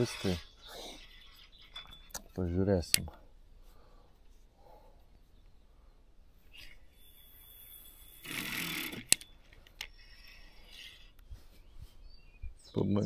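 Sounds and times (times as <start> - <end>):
fishing line hissing off reel: 6.5 - 9.2, 9.8 - 11.2.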